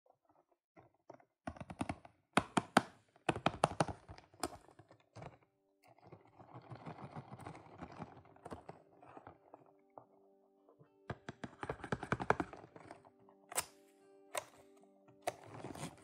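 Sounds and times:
fingers tapping cardboard box: 0:01.5 - 0:04.6, 0:11.1 - 0:13.0.

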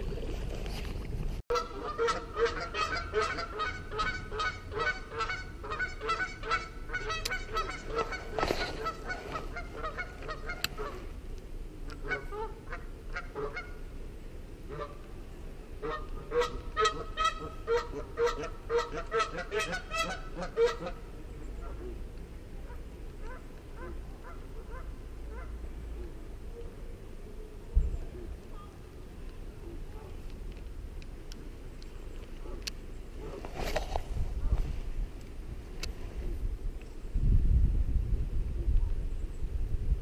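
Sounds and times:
geese honking: 0:01.5 - 0:11.1, 0:12.0 - 0:13.8, 0:15.8 - 0:21.9.

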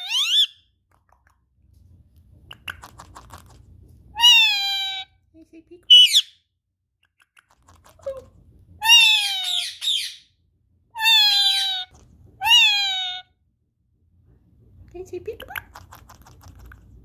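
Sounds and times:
parakeet calling: 0:00.0 - 0:00.6, 0:05.9 - 0:06.3, 0:08.8 - 0:10.3, 0:11.0 - 0:13.2.

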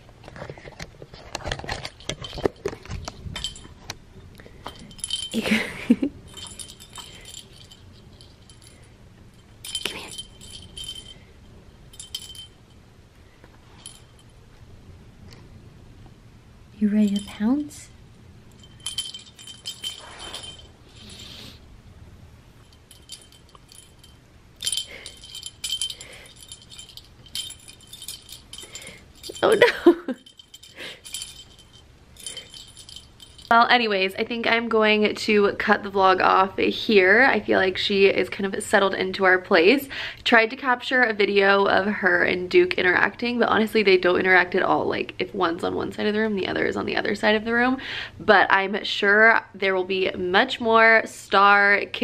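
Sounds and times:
rustling and jingling: 0:00.0 - 0:14.5, 0:16.8 - 0:21.6, 0:22.4 - 0:35.0
metal bead chain rattling: 0:01.4 - 0:12.8, 0:13.7 - 0:14.3, 0:16.8 - 0:17.9, 0:18.5 - 0:21.6, 0:22.6 - 0:34.6
bell tinkle: 0:04.7 - 0:11.3, 0:11.9 - 0:12.8, 0:17.0 - 0:17.9, 0:18.6 - 0:21.6, 0:22.7 - 0:33.8.

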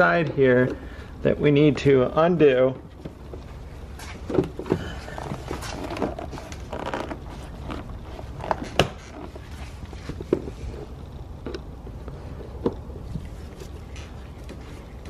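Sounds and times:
scraping and rustling: 0:03.2 - 0:11.2.

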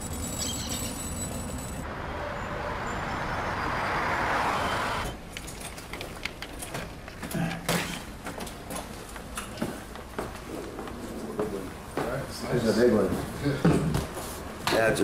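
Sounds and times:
city street traffic: 0:00.0 - 0:07.1
passing vehicle: 0:01.8 - 0:05.2.

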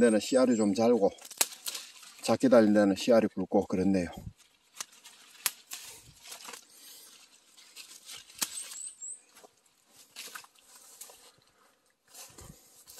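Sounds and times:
branches and leaves rustling: 0:00.0 - 0:12.9
sharp clicks and snaps: 0:01.2 - 0:02.0.

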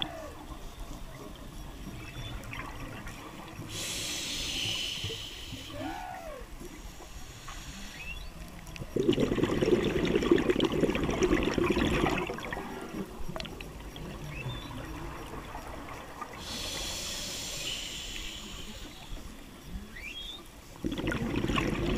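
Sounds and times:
whale calls: 0:00.0 - 0:08.4, 0:14.0 - 0:20.6
regulator inhalation hiss: 0:03.6 - 0:08.5, 0:16.4 - 0:19.4
exhaled bubbles rushing: 0:08.8 - 0:16.5, 0:20.8 - 0:21.9.

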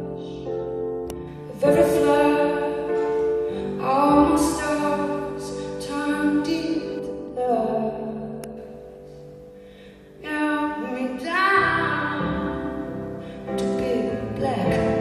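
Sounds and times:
piano: 0:00.0 - 0:15.0
woman singing: 0:01.5 - 0:08.5, 0:10.2 - 0:15.0.

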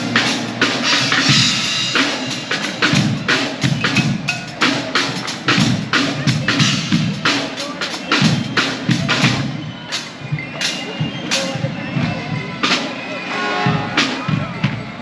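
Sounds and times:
bass drums beating: 0:00.0 - 0:09.8
snare drums beating: 0:00.0 - 0:14.8.

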